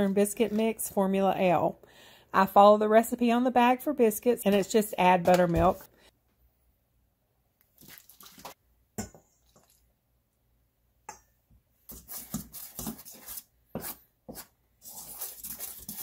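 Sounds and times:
fork stirring in metal bowl: 11.9s - 16.0s.

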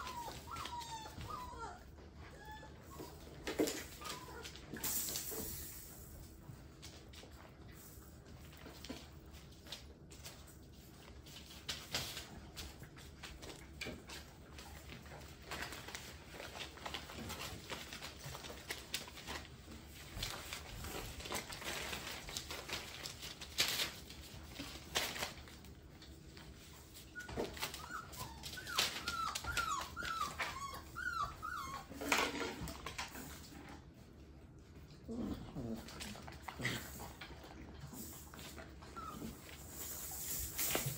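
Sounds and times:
puppy whimpering: 0.0s - 4.8s, 27.1s - 33.3s, 38.6s - 39.8s.

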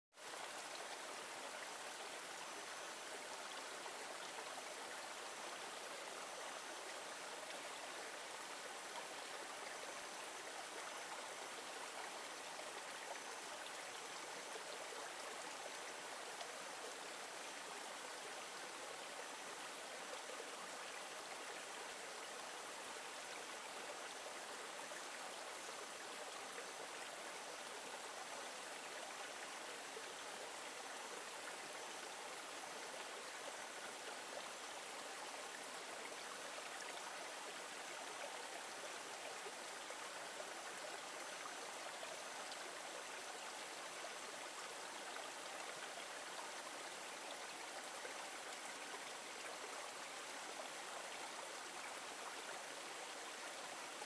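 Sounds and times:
stream water trickling and splashing: 0.1s - 54.0s.

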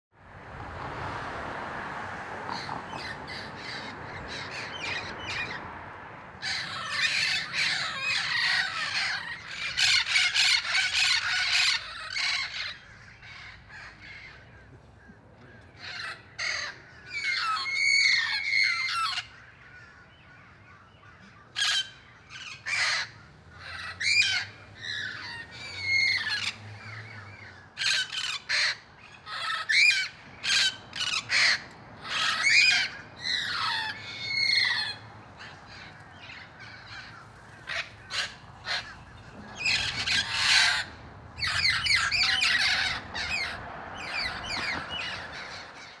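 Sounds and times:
parrots squawking: 2.5s - 5.6s, 6.4s - 14.6s, 15.8s - 46.0s.

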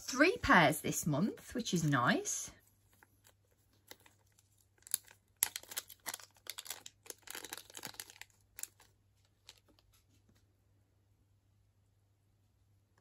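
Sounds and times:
plastic bag crinkling: 2.9s - 10.0s.

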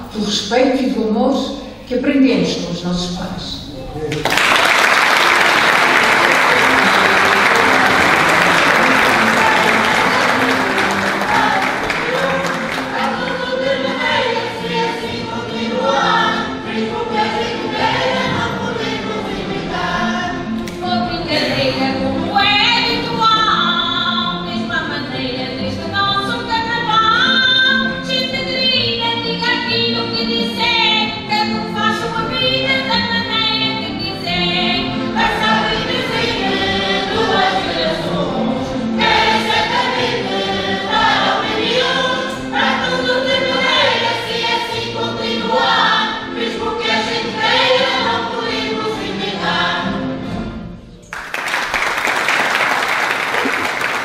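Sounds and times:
instrumental accompaniment: 3.6s - 54.0s
audience applause: 4.1s - 13.4s, 51.1s - 54.0s
group singing in chorus: 4.5s - 31.1s, 31.8s - 50.5s.

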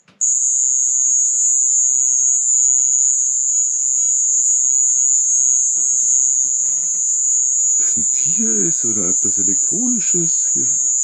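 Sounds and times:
high-pitched screech: 4.5s - 11.0s.

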